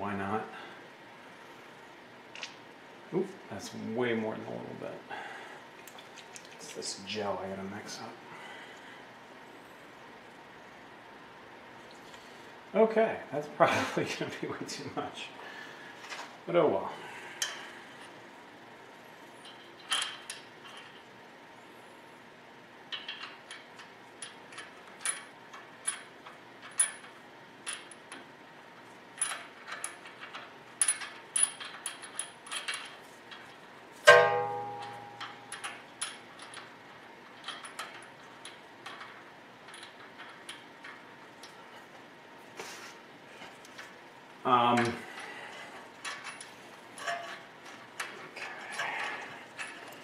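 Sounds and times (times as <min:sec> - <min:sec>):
ringing metallic clink: 0:34.1 - 0:35.6.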